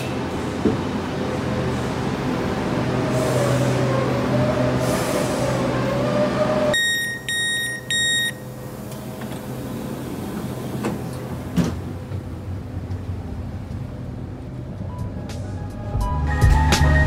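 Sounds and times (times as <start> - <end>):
train humming: 0.0 - 6.8, 8.4 - 17.0
short electronic door beeps: 6.7 - 8.5.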